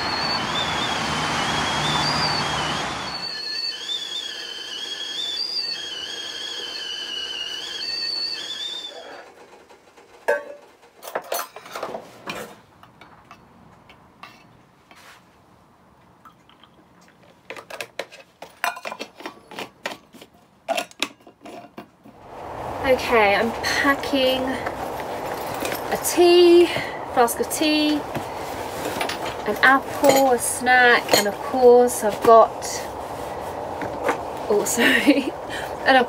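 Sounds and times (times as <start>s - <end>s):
kettle whistling: 0.0s - 9.4s
clinks and knocks of metal flask: 18.6s - 20.0s.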